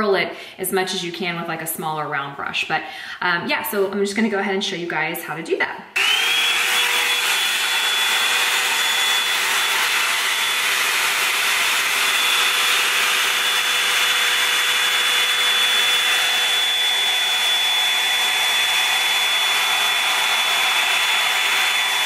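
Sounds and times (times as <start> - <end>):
blow dryer brush whirring: 6.0 - 22.0.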